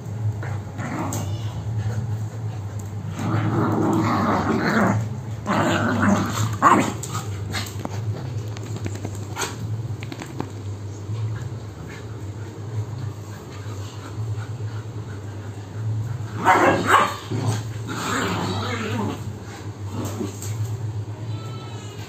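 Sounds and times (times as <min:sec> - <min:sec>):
dogs growling: 0:00.2 - 0:10.4, 0:11.0 - 0:20.7
dogs scuffling: 0:02.6 - 0:14.1.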